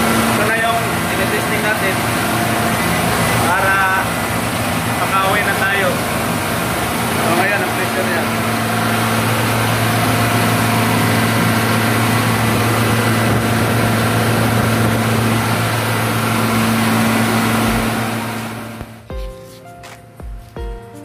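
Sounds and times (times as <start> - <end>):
air compressor humming and hissing: 0.0 - 20.8
music notes: 19.0 - 21.0.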